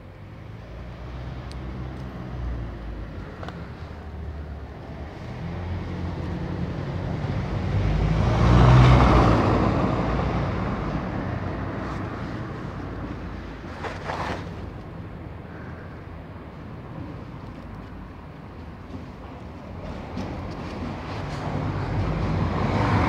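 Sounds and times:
vehicle driving past: 5.0 - 12.6, 20.9 - 23.0.

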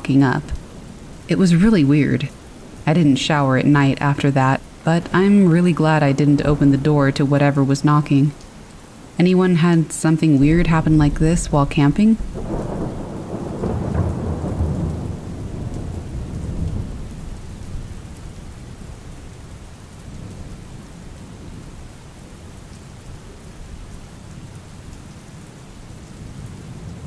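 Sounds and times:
thunder rumbling: 0.0 - 8.4, 10.4 - 21.9
steady rain falling: 0.0 - 27.0.

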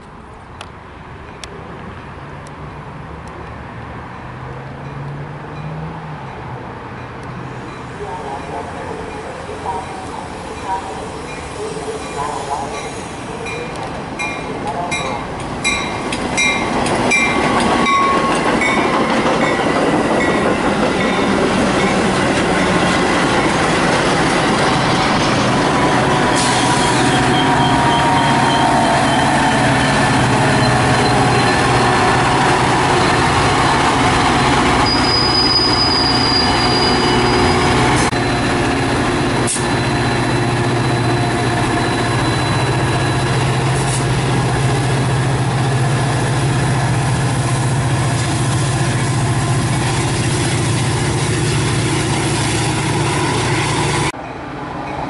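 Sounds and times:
train rolling past: 4.0 - 55.0
train brakes squealing: 26.1 - 44.2.

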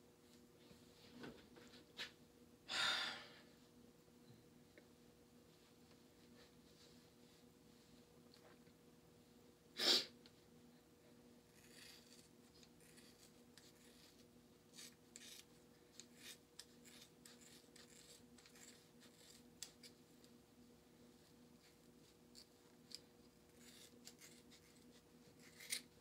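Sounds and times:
scissors snipping hair: 23.6 - 25.9.

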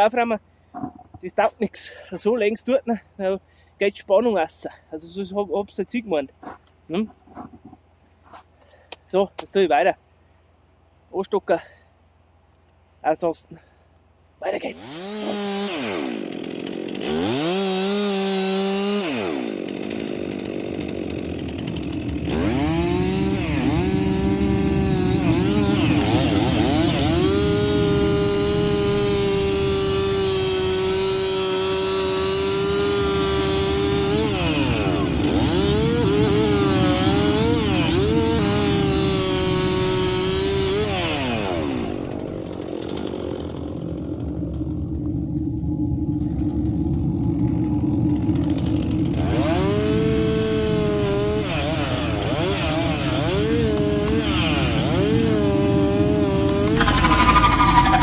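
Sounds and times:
chainsaw revving and cutting log: 14.7 - 45.4, 46.3 - 58.0.

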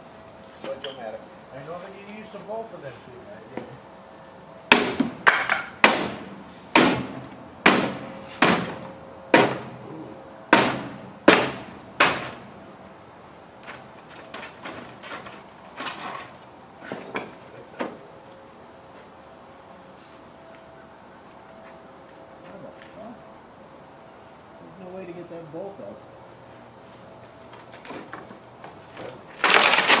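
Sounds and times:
hatchet striking wood with ringing: 4.7 - 9.8, 10.5 - 12.3.

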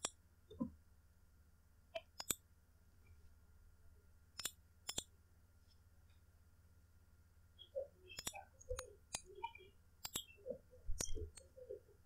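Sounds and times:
mouse button clicks: 8.2 - 10.3.

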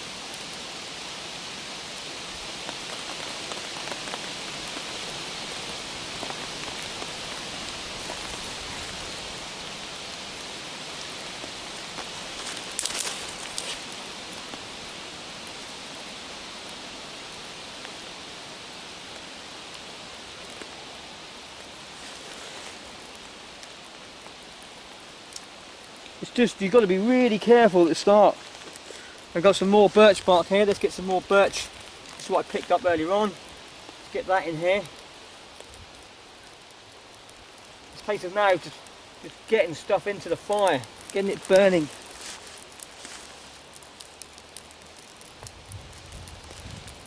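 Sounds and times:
twig fire crackling and hissing: 0.0 - 47.0
sticks snapping: 12.0 - 14.0, 25.3 - 25.5.

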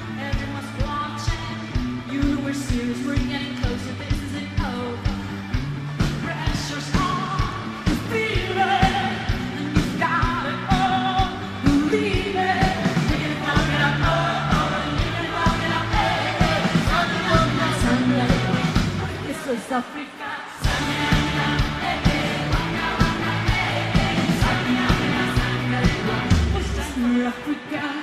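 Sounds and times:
woman singing: 0.0 - 5.2, 6.2 - 28.0
bass: 0.0 - 19.7, 20.6 - 27.6
drum beat: 12.6 - 19.2, 20.6 - 27.0.

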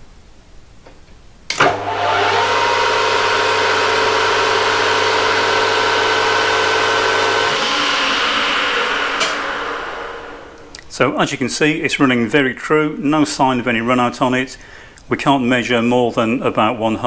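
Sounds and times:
lathe switch click: 1.5 - 2.0, 9.1 - 9.7
lathe motor whining: 1.5 - 10.8
low hum: 1.5 - 10.9.

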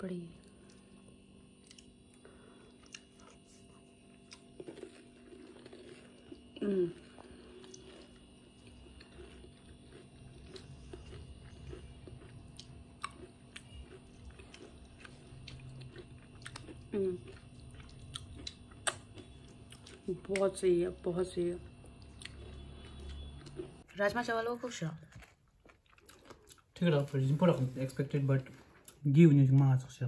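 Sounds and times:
person chewing food: 0.4 - 20.5, 21.8 - 23.9, 25.1 - 27.8
person humming: 6.6 - 7.0.

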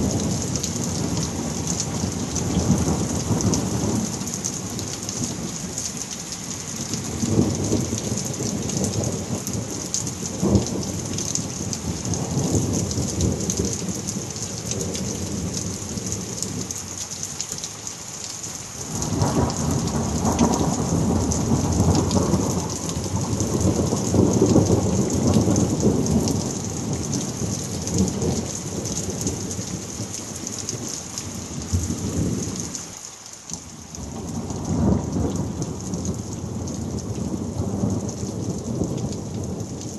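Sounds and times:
heavy rain downpour: 0.0 - 39.9
rolling thunder: 7.0 - 16.6, 18.8 - 32.7, 34.0 - 39.9.

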